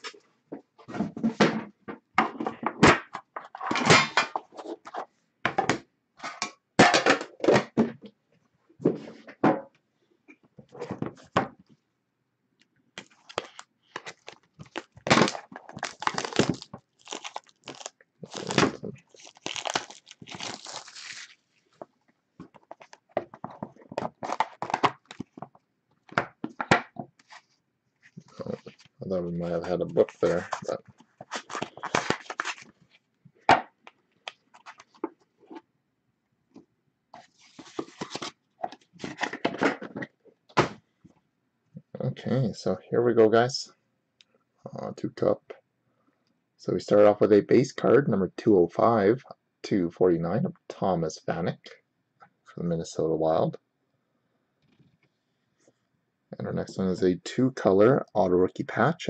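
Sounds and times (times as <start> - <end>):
wrapping crinkling and tearing: 13.0 - 21.8, 30.0 - 32.8, 37.2 - 38.4.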